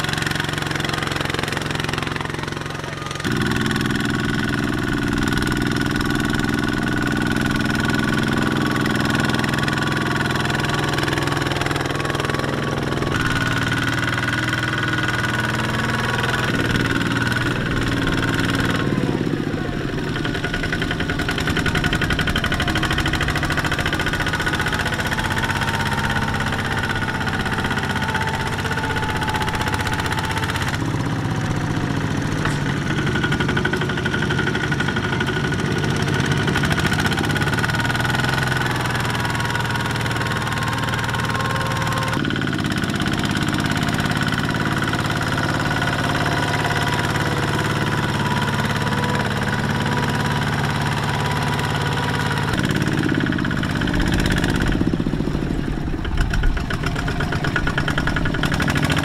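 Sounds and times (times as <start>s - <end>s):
diesel tractor engine running: 0.0s - 59.0s.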